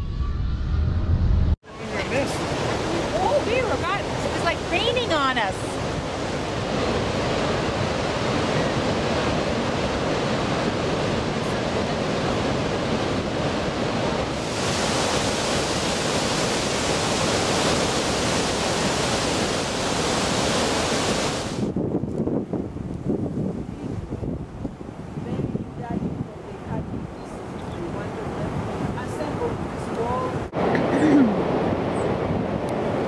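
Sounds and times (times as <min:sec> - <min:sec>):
wind buffeting microphone: 0:00.0 - 0:33.0
waterfall rushing: 0:01.7 - 0:21.7.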